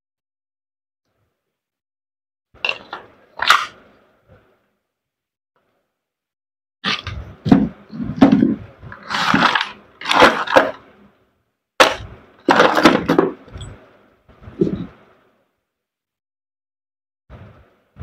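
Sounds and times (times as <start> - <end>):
metal parts clattering on wood: 8.2 - 10.9, 11.8 - 13.8.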